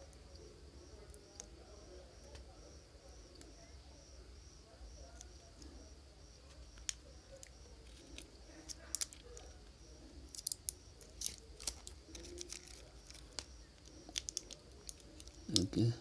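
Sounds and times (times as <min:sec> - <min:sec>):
fingers handling phone battery: 0:06.5 - 0:09.5, 0:10.3 - 0:15.7.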